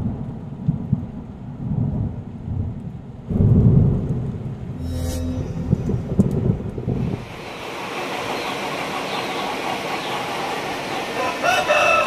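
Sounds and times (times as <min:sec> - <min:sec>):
rooster crowing: 0:11.2 - 0:12.0.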